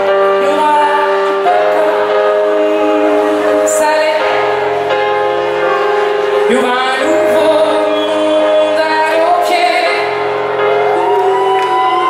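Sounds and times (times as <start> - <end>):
live pop band playing: 0.0 - 12.0.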